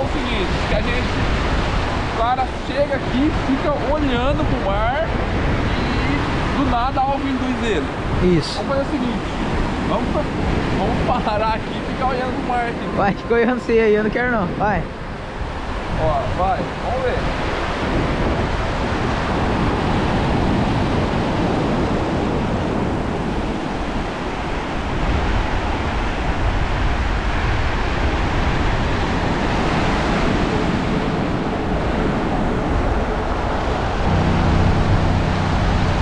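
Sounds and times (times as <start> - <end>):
ocean surf washing: 0.0 - 36.0
wind on microphone: 0.0 - 36.0
low steady hum: 33.9 - 36.0.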